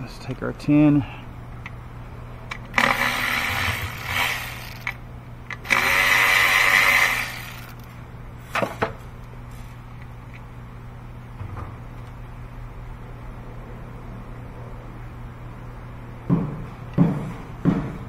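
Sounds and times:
electric ratchet whirring: 0:02.5 - 0:07.9.

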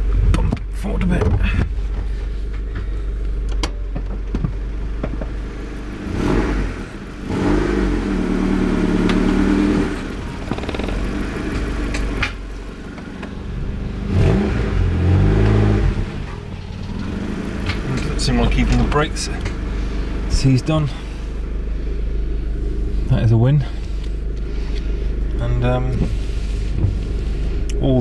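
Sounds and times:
car engine idling and revving: 0:00.0 - 0:28.0.

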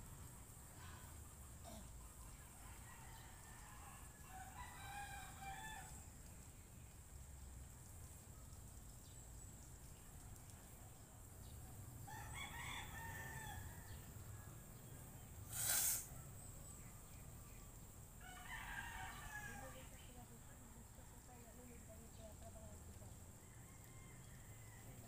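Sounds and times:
faint outdoor background: 0:00.0 - 0:25.0
rooster crowing: 0:02.5 - 0:06.0, 0:12.1 - 0:14.0, 0:18.2 - 0:19.9, 0:23.4 - 0:25.0.

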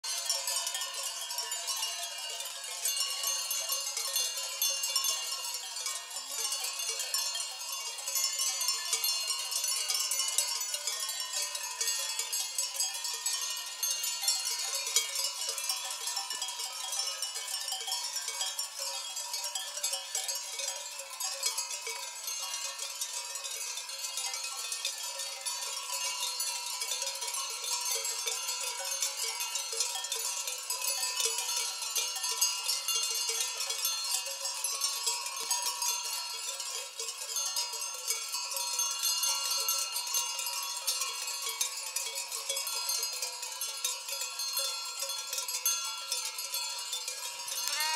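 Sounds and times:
sheep bells clinking: 0:00.0 - 0:47.9.

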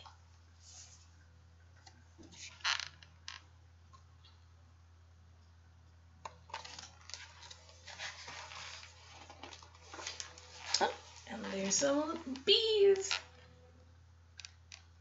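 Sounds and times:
faint low hum: 0:00.0 - 0:15.0
book pages rustling: 0:06.5 - 0:12.5.

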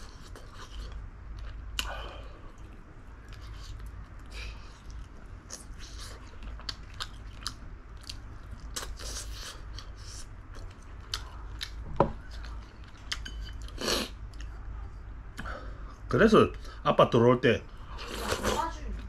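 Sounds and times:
person chewing food: 0:00.0 - 0:14.7.

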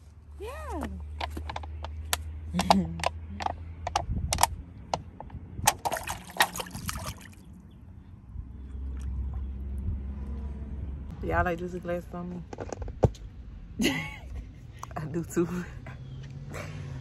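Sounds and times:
water splashing in a pool: 0:05.7 - 0:07.5.

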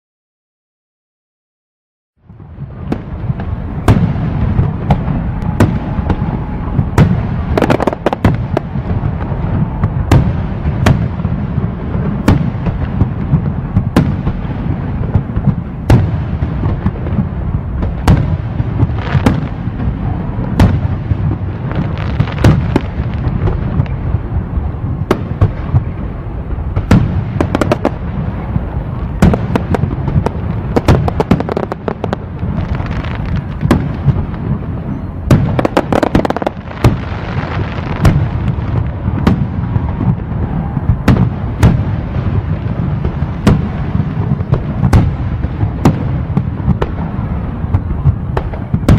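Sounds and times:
low rumble: 0:02.2 - 0:22.0
fireworks bangs: 0:02.2 - 0:48.9
fireworks crackling: 0:02.2 - 0:48.9.

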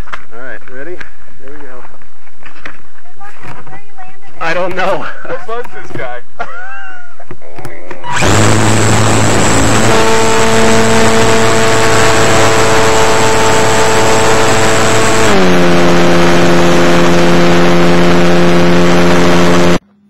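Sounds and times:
model plane motor whine: 0:08.1 - 0:19.8.

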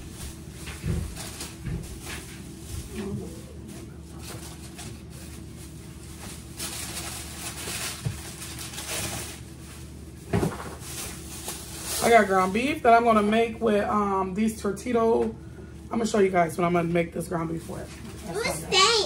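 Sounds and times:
packages rustling: 0:00.0 - 0:12.8.

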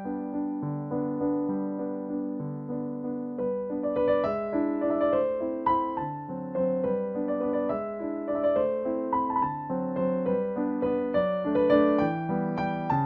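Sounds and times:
soft piano melody: 0:00.0 - 0:13.0.

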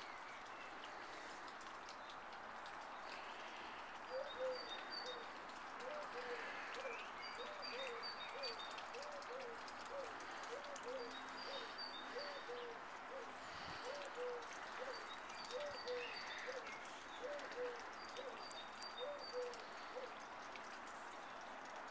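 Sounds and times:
small birds chirping faintly: 0:00.0 - 0:21.9
pigeon cooing: 0:04.1 - 0:18.4, 0:19.0 - 0:20.2.

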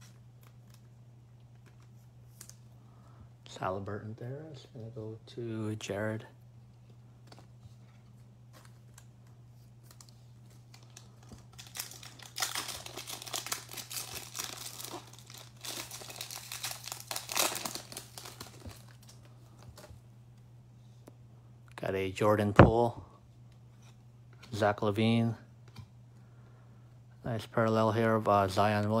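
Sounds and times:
handling of cards: 0:06.7 - 0:20.4
foil wrapper tearing and crinkling: 0:09.9 - 0:19.2.

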